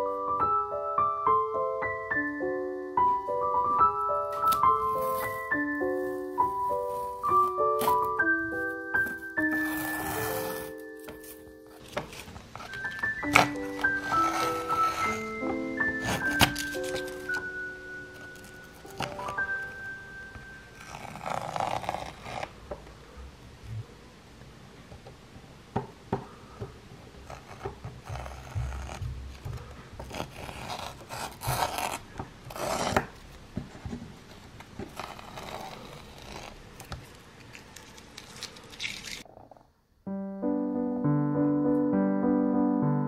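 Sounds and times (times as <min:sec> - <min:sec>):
piano music: 0:00.0 - 0:22.4, 0:40.0 - 0:43.0
masking tape peeling: 0:09.4 - 0:17.5, 0:18.2 - 0:19.6, 0:20.8 - 0:22.6, 0:30.0 - 0:33.2, 0:34.8 - 0:39.3.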